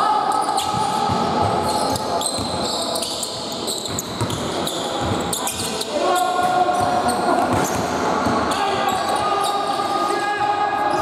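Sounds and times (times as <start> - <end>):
sneakers squeaking: 0.2 - 10.2
basketball bouncing on wooden court: 0.6 - 5.7.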